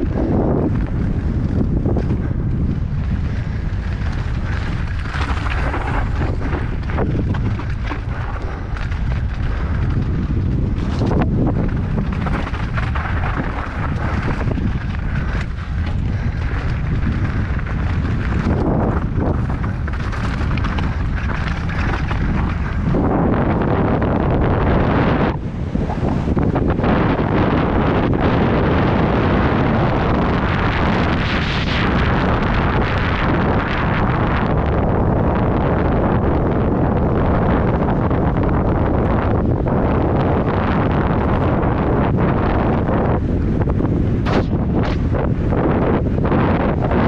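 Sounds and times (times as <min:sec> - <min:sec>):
wind buffeting microphone: 0:00.0 - 0:47.0
tyres crunching over gravel: 0:00.1 - 0:24.0
bike knocking over bumps: 0:00.4 - 0:24.0.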